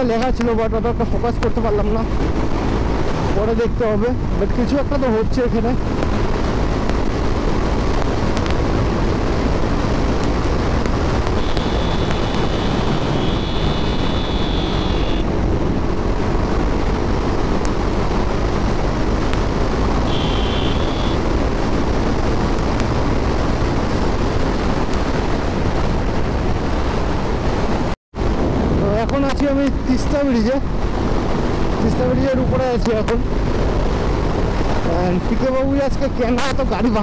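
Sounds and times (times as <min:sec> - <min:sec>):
motorcycle engine rumble: 0:00.0 - 0:30.0
road noise: 0:00.0 - 0:37.0
wind rush on microphone: 0:00.0 - 0:37.0
high thin tone: 0:11.3 - 0:15.3, 0:20.0 - 0:21.2.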